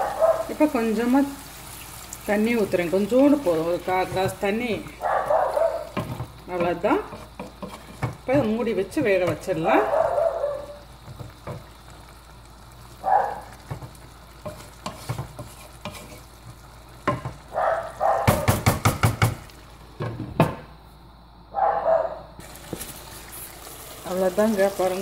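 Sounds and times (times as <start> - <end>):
curry sizzling: 0.0 - 20.2, 22.4 - 25.0
wooden spoon scraping a pot: 5.8 - 9.7, 13.7 - 17.2
sharp taps on a pot: 17.0 - 17.4, 18.2 - 19.4.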